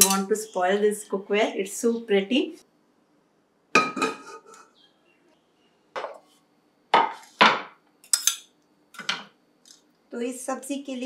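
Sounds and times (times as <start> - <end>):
kitchen utensils being handled: 0.0 - 0.3, 8.1 - 9.3.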